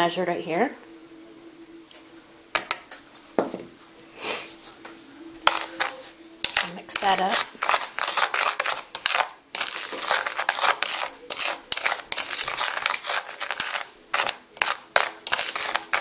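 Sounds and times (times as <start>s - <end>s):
metal spoon scraping in plastic bowl: 5.4s - 16.0s.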